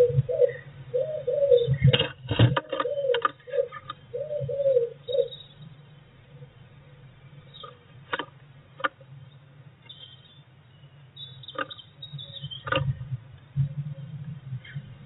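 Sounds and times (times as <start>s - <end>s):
wing flutter and thump: 1.8s - 3.3s, 12.6s - 13.0s
faint high bird calls: 2.8s - 5.7s, 9.2s - 12.7s
bird feet tapping on wood: 11.5s - 11.8s.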